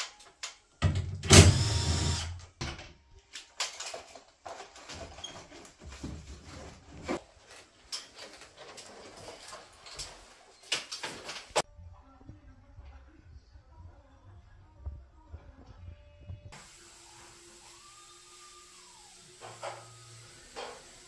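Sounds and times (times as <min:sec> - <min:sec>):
knocks clicks and scraping of parts: 0:02.6 - 0:11.6.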